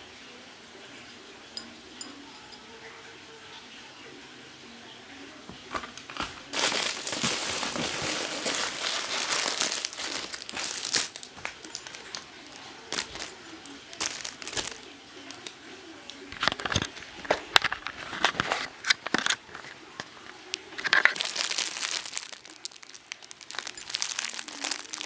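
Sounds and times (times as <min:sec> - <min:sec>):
plastic bags crinkling: 0:05.7 - 0:25.0.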